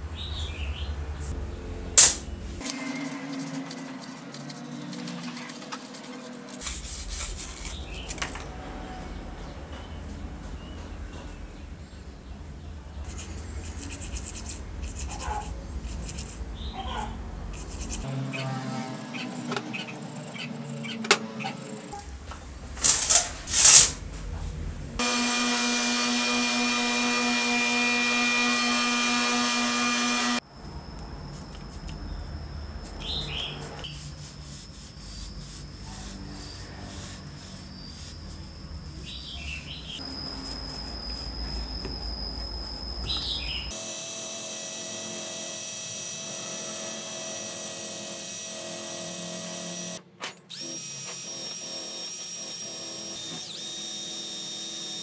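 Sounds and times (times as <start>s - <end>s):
bristle brush scrubbing: 3.0s - 7.8s, 33.8s - 39.2s
drill spinning wire brush on metal: 22.8s - 24.0s, 25.0s - 30.4s, 43.7s - 55.0s
power tool running: 25.0s - 30.4s, 43.7s - 55.0s
light rubbing with squeaks: 32.8s - 43.4s.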